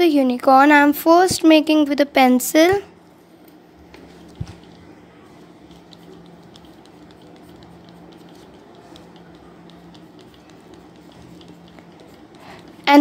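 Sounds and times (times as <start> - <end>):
steady low hum: 0.0 - 13.0
pencil scratching on paper: 4.0 - 13.0.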